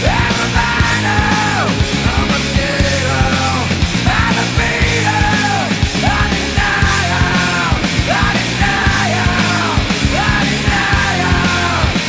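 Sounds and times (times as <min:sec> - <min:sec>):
person singing: 0:00.0 - 0:12.0
rock music: 0:00.0 - 0:12.0
steady drum beat: 0:00.0 - 0:12.0.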